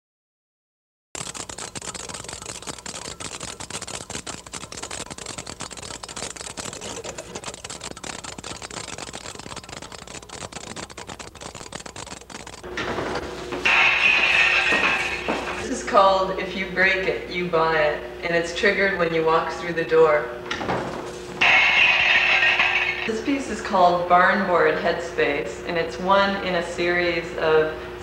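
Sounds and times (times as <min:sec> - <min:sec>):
rapid clicking and crackling: 0:01.2 - 0:12.8, 0:13.6 - 0:15.7, 0:21.4 - 0:23.2.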